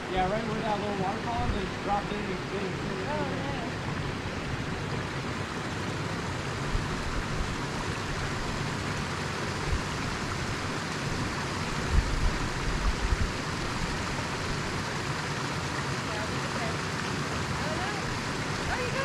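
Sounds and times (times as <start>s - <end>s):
creek rushing over rocks: 0.0s - 19.0s.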